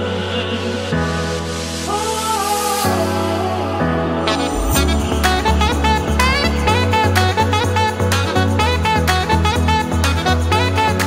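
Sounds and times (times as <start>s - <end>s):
background music with steady beat: 0.9s - 11.0s.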